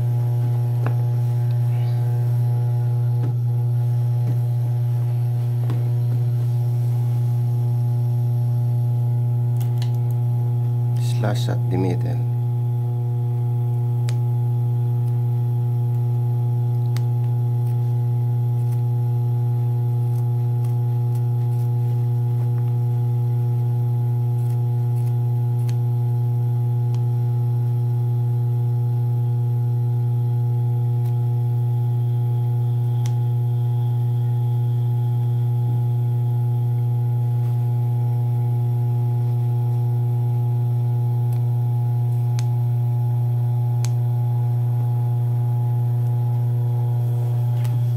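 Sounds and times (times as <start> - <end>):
scissors snipping cloth: 20.0 - 22.6, 24.3 - 25.9.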